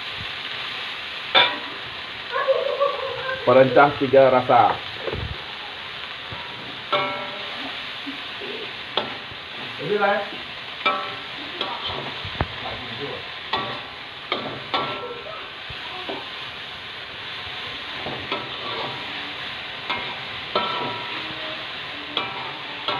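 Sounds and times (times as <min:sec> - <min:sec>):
food sizzling in hot oil: 0:00.0 - 0:22.9
metal spatula scraping wok: 0:17.2 - 0:22.9.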